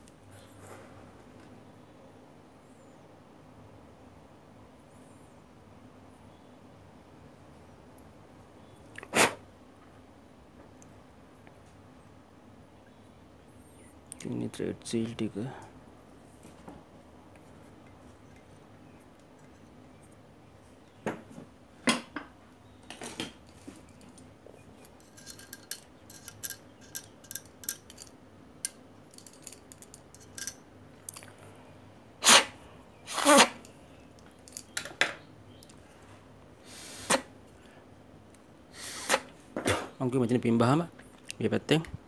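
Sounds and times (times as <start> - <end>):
metal parts clicking and clinking: 23.5 - 31.3, 34.2 - 34.9.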